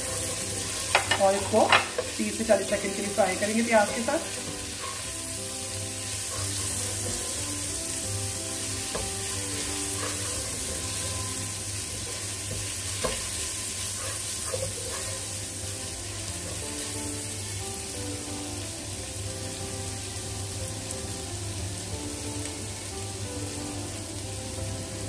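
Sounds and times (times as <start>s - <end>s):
spatula stirring: 0.0s - 5.2s, 8.8s - 15.5s
onions sizzling in hot oil: 0.0s - 25.0s
spatula knocking against pan: 0.9s - 2.2s.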